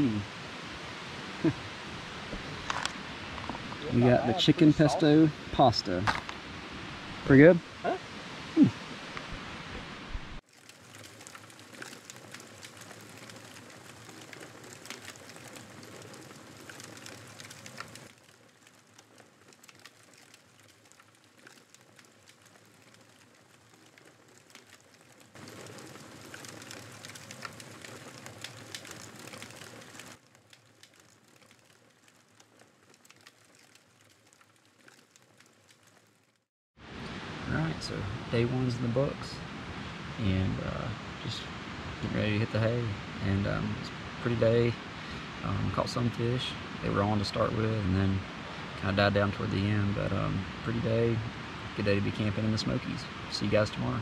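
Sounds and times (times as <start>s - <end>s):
campfire crackling and popping: 0.0s - 54.0s.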